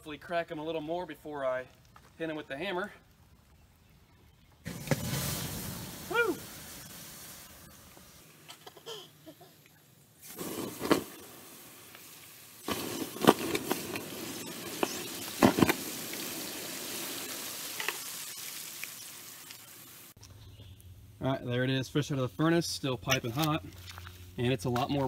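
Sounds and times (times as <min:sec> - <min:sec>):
sharp pops: 0:04.6 - 0:08.6, 0:09.6 - 0:16.6
water hissing on hot rocks: 0:04.7 - 0:20.2.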